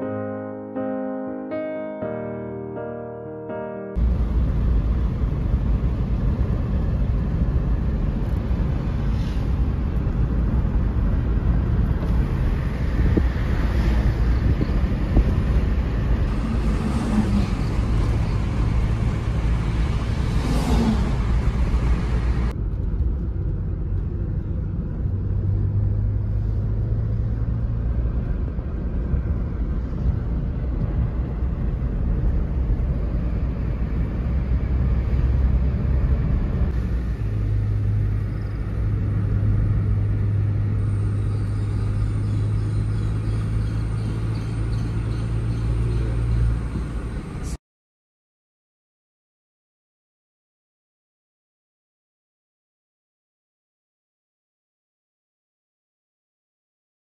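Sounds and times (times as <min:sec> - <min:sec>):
engine and tyres rumbling: 0:03.9 - 0:47.6.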